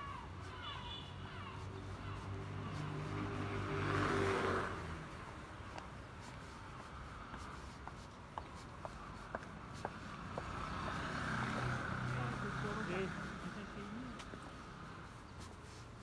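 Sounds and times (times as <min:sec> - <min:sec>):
footsteps on wet pavement: 0:00.0 - 0:16.0
street noise: 0:00.0 - 0:16.0
vehicle swishing past on wet street: 0:02.0 - 0:05.4, 0:10.2 - 0:14.9.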